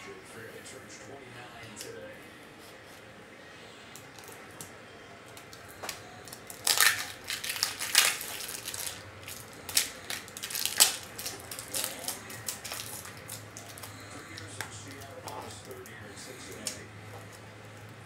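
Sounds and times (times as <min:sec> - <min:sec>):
packaging tearing and crinkling: 0:05.4 - 0:15.9.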